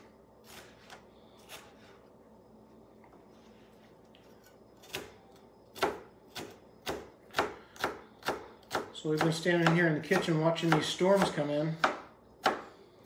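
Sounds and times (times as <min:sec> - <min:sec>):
knife chopping on cutting board: 0:05.7 - 0:12.7.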